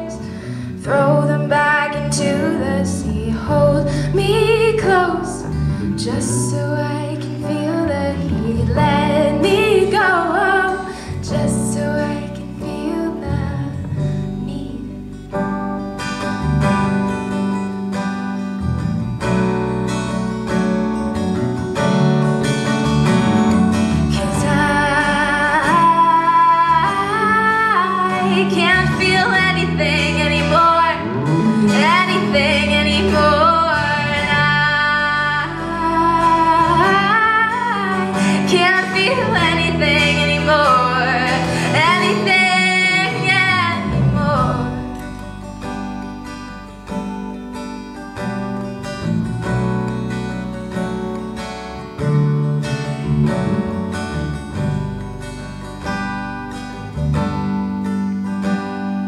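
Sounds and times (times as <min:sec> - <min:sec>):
woman singing: 0:00.0 - 0:15.0, 0:24.1 - 0:45.3
acoustic guitar strumming: 0:00.0 - 0:59.0
electric bass guitar: 0:00.0 - 0:59.0.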